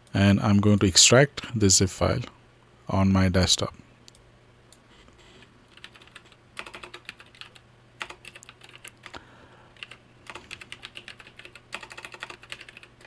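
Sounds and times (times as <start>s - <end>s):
keyboard typing: 5.7s - 9.2s, 9.8s - 13.0s.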